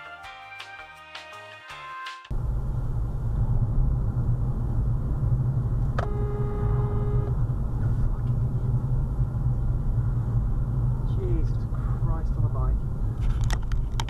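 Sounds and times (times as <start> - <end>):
car cabin road and engine rumble: 2.3 - 14.0
single pitched tone: 6.0 - 7.4.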